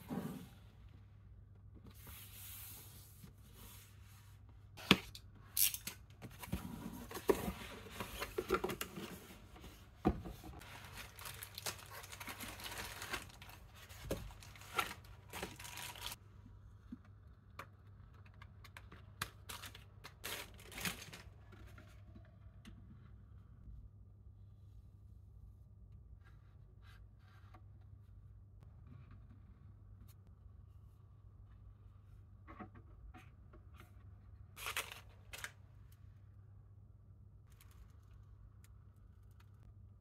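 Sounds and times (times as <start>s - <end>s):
cardboard packaging rustling and tearing: 10.6s - 16.2s, 19.4s - 21.4s, 34.6s - 35.6s.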